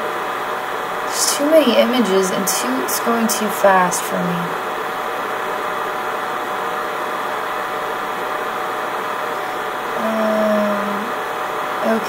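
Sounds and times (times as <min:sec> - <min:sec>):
rushing room noise: 0:00.0 - 0:12.0
woman humming: 0:10.0 - 0:11.2.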